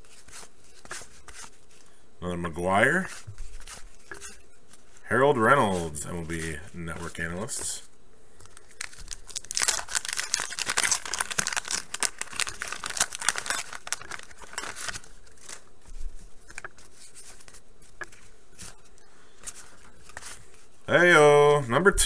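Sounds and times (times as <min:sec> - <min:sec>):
wrapper crinkling: 0:08.4 - 0:20.8
wax paper wrapper tearing: 0:08.5 - 0:15.7.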